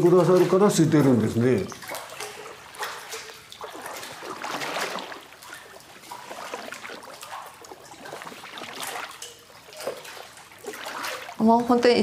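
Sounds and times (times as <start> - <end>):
paper pulp slurry sloshing: 0.0 - 12.0.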